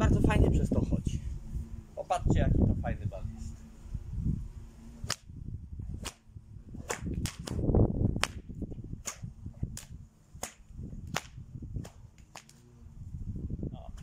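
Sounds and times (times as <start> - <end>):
low rumbling noise: 0.0 - 14.0
whip cracking: 5.0 - 5.3, 6.0 - 6.2, 6.8 - 7.6, 8.2 - 12.6.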